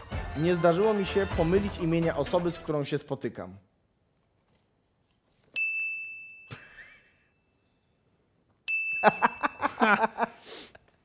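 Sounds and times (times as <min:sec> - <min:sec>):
bright bell-like ding: 0:05.6 - 0:06.6, 0:08.7 - 0:09.4.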